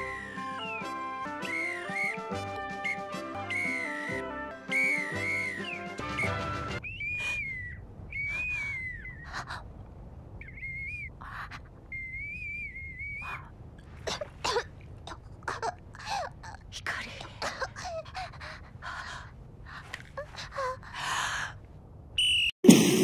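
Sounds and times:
child blowing whistle: 0:00.5 - 0:07.6.

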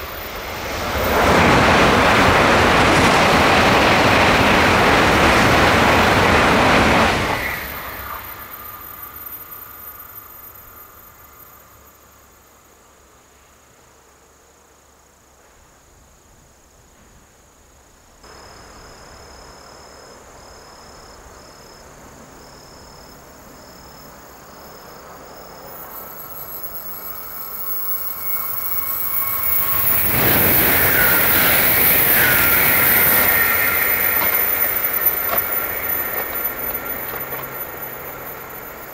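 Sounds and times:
train passing at speed: 0:00.0 - 0:38.9
high whine: 0:25.5 - 0:38.9.

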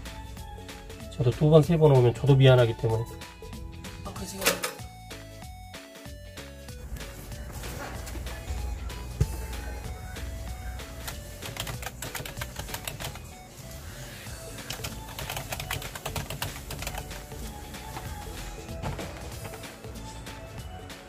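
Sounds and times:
light background music: 0:00.0 - 0:21.0
keyboard keys clicking: 0:09.5 - 0:13.3, 0:14.6 - 0:18.1.

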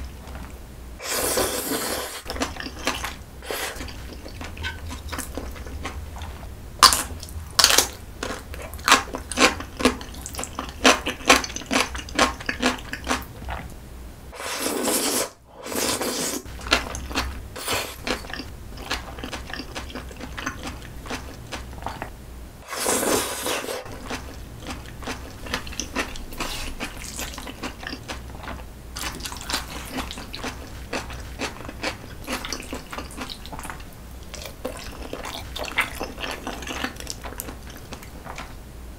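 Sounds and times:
wet slurps of noodles: 0:01.0 - 0:02.7, 0:14.4 - 0:16.4.

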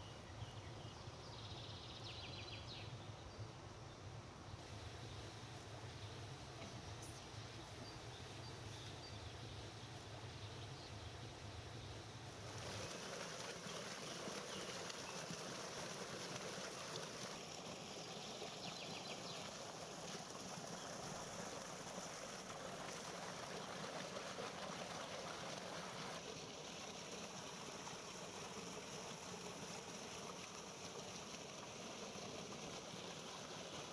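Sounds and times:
stream rushing over rock ledge: 0:12.4 - 0:33.9.

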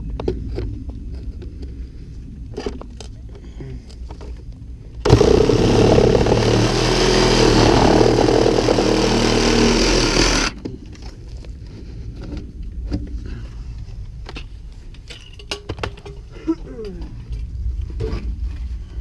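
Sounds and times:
reciprocating saw cutting plastic pipe: 0:05.0 - 0:10.6.

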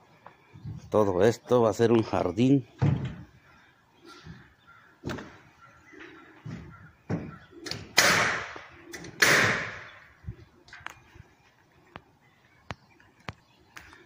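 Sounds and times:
dull thumps: 0:02.8 - 0:03.4, 0:06.4 - 0:07.5.

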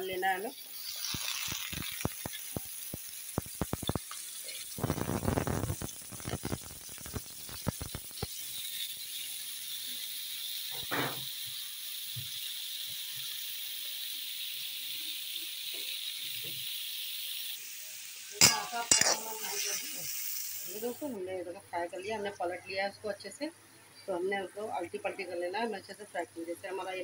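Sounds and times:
food sizzling in hot oil: 0:00.0 - 0:22.4
oil crackles: 0:00.5 - 0:09.4
metal spatula scraping pan: 0:18.4 - 0:20.1.

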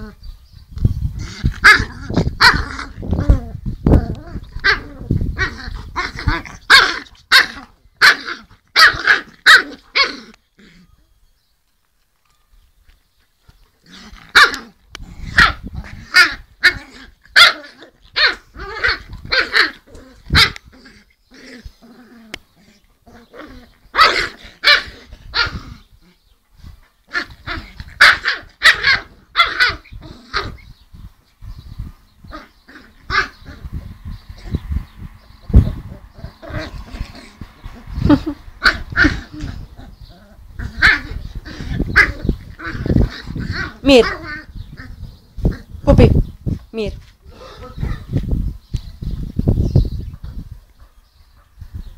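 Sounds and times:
puppy barking: 0:06.7 - 0:10.1, 0:17.4 - 0:19.6, 0:28.0 - 0:29.8.

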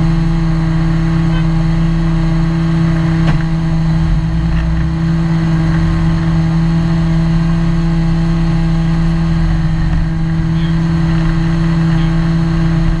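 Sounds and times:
low rumble: 0:00.0 - 0:13.0
race car engine running steadily: 0:00.0 - 0:13.0.

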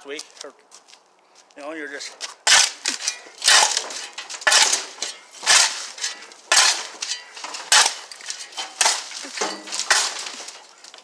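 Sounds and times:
shovel digging into dirt and rock: 0:02.4 - 0:10.8
shovel scraping asphalt: 0:02.4 - 0:11.0.

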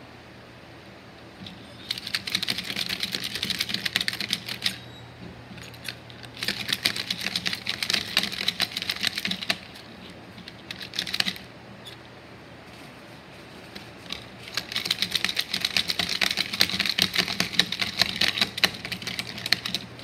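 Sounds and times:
plastic toy figures clacking: 0:01.8 - 0:04.8, 0:05.6 - 0:11.5, 0:14.0 - 0:19.9.

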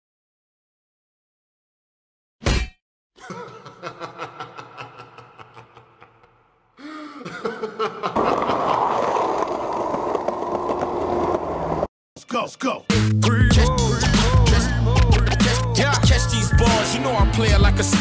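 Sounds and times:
skateboard wheels rolling on asphalt: 0:08.1 - 0:11.9.

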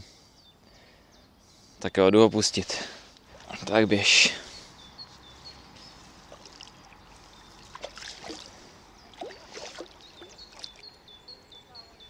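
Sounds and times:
light splashing of river water: 0:03.2 - 0:03.9, 0:05.1 - 0:10.9.

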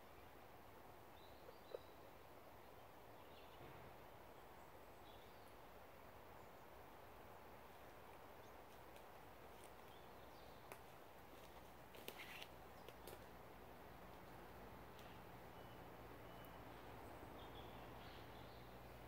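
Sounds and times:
faint bird chirps: 0:14.9 - 0:19.0.

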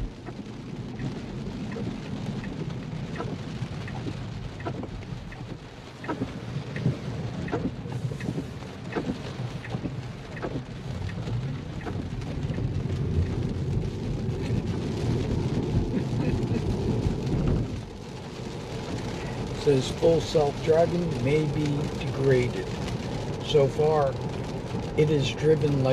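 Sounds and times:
rain tapping on car roof: 0:00.0 - 0:25.9
tyres hissing on wet road: 0:05.8 - 0:25.9.

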